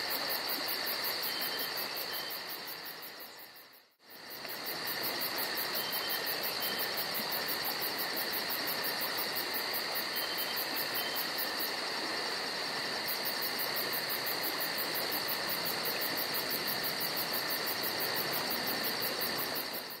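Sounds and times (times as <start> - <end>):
insect chirring chorus: 0.0 - 20.0.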